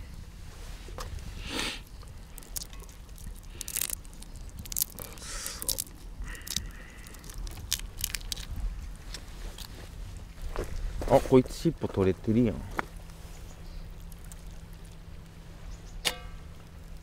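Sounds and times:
shrimp shell crackling and tearing: 0:01.4 - 0:09.8, 0:13.8 - 0:15.3.

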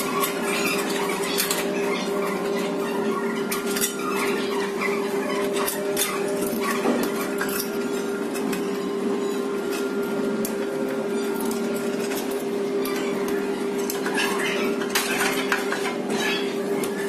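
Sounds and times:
metal parts clicking and clinking: 0:09.4 - 0:17.0.

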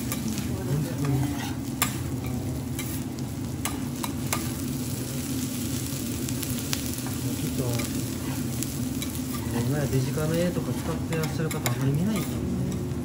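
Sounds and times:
rice sizzling on griddle: 0:00.0 - 0:13.0
metal spatula scraping: 0:01.0 - 0:01.7.

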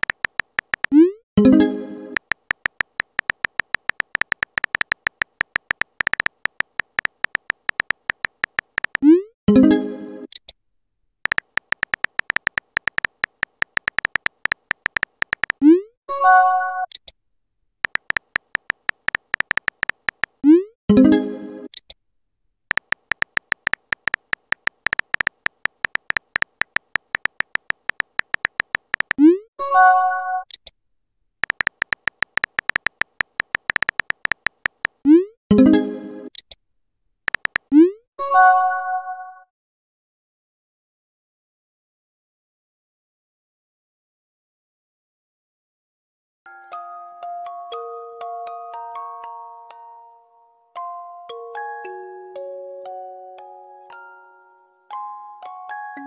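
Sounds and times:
short electronic typing beeps: 0:00.0 - 0:01.2, 0:02.2 - 0:09.2, 0:11.3 - 0:15.8, 0:17.8 - 0:20.6, 0:22.7 - 0:29.4, 0:31.4 - 0:35.3, 0:37.3 - 0:37.9.

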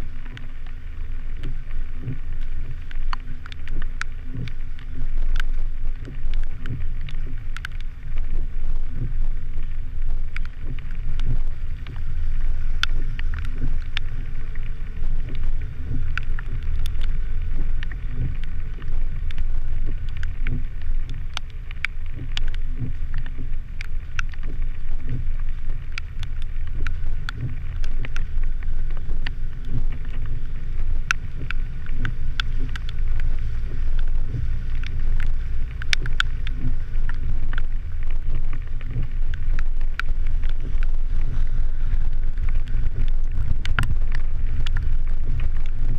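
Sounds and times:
vehicle engine and tyres rumbling: 0:00.0 - 0:45.9
sharp ticks and taps: 0:01.4 - 0:45.9.

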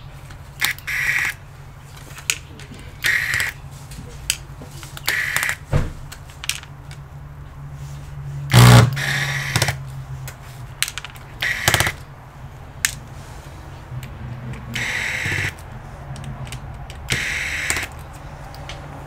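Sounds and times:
electric screwdriver whirring: 0:03.0 - 0:03.6, 0:05.0 - 0:05.6, 0:08.5 - 0:09.8, 0:11.4 - 0:12.0, 0:14.8 - 0:15.6, 0:17.1 - 0:17.9.

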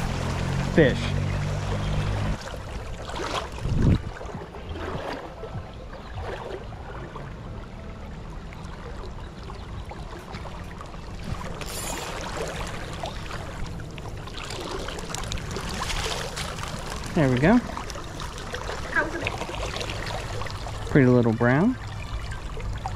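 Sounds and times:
river current rushing: 0:00.0 - 0:03.6, 0:11.0 - 0:22.9
brief high hiss: 0:11.6 - 0:12.3.

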